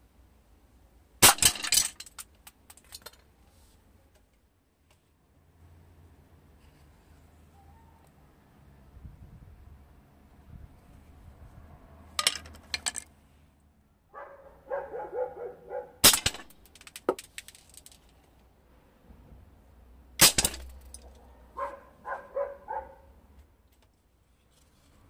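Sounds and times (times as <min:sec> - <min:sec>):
dog barking: 0:14.1 - 0:16.0, 0:21.2 - 0:23.1.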